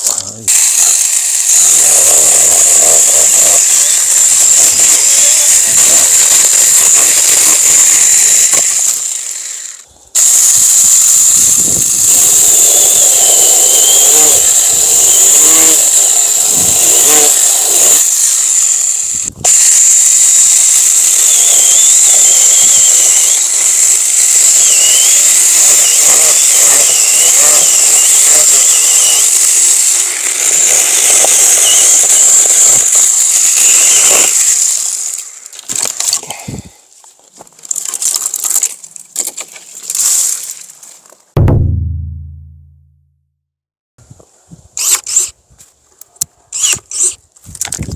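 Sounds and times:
electric saw cutting branches: 0.0 - 36.4, 44.8 - 45.4, 46.5 - 47.8.

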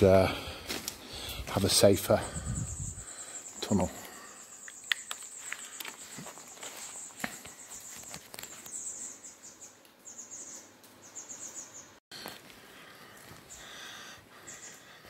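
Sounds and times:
bats squeaking: 2.1 - 11.8.

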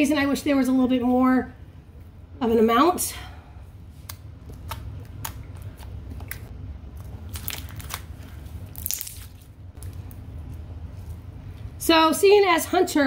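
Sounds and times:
slime crackle: 7.1 - 10.2.

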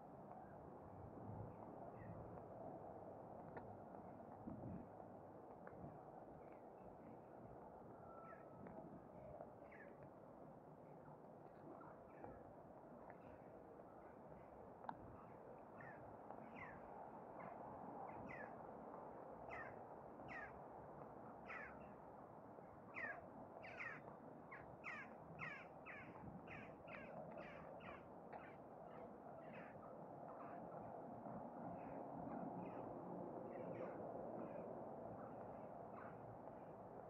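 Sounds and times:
crows calling: 21.5 - 21.8, 23.0 - 28.5.

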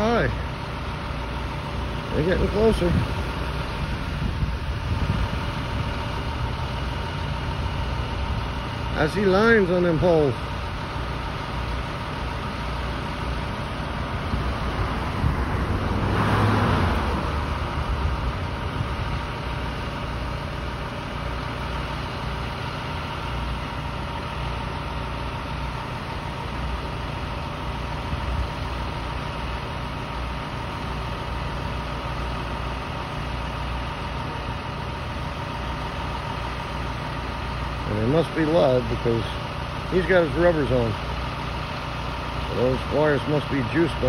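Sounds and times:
diesel truck engine idling: 0.0 - 44.0
car passing by: 14.9 - 17.5.

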